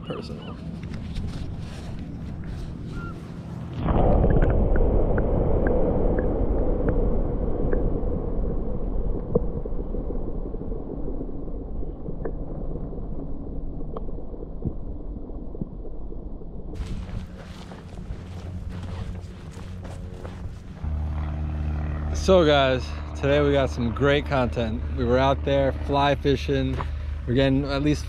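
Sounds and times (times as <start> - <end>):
underwater rumbling gurgle: 3.7 - 20.9.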